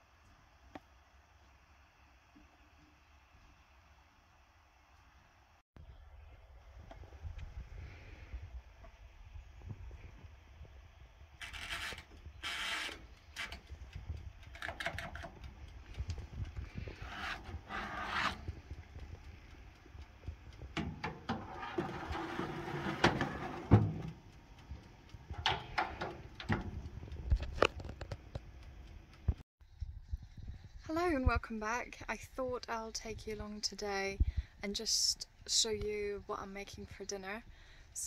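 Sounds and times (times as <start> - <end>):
baking tray scraping on rack: 16.8 - 18.6, 21.1 - 24.1
oven dial clicks: 20.7 - 24.3, 25.2 - 27.2.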